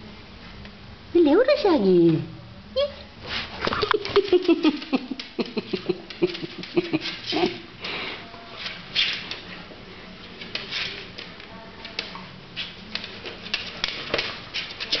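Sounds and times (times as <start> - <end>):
dog claws clicking on wooden floor: 10.4 - 15.0.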